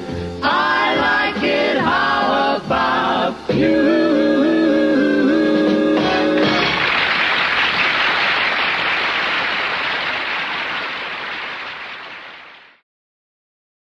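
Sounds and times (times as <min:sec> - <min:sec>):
audience applauding: 0:06.4 - 0:12.8.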